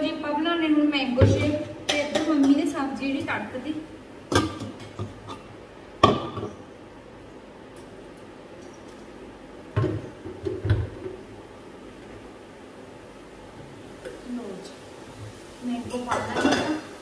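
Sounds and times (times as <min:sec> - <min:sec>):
kitchen utensils knocking and clinking: 0:15.9 - 0:16.9.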